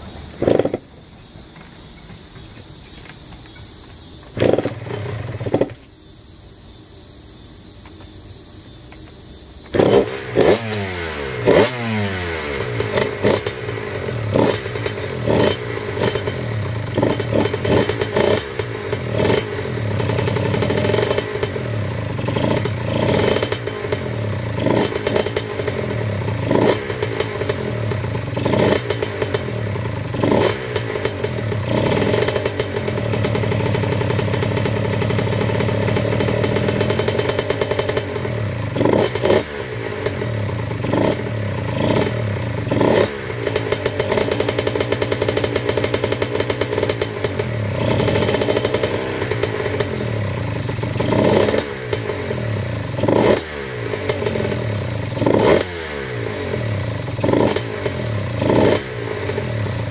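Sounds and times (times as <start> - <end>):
two-stroke engine revving: 0.0 - 0.9, 4.2 - 5.8, 9.6 - 59.9.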